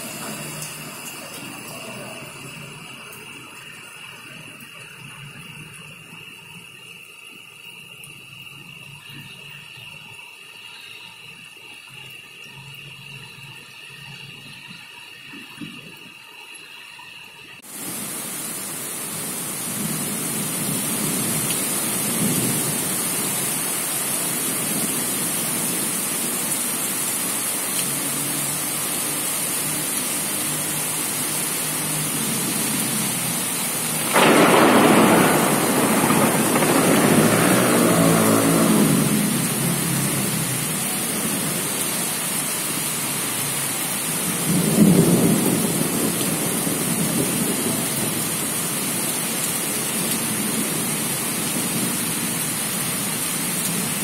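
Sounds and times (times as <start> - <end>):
heavy rain on street: 0.0 - 54.0
rolling thunder: 33.9 - 41.5.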